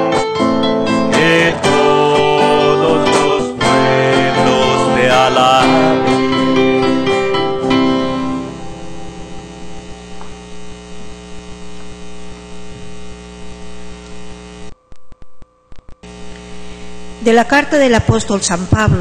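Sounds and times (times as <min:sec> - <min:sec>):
steady electrical hum: 0:04.6 - 0:19.0.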